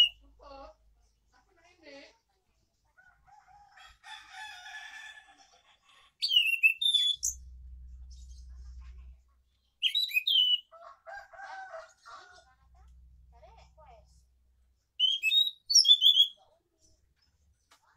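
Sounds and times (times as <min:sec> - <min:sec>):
rooster crowing: 0:03.2 - 0:05.6, 0:10.7 - 0:12.6
thrush whistling song: 0:06.2 - 0:07.4, 0:09.8 - 0:10.7, 0:15.0 - 0:16.4.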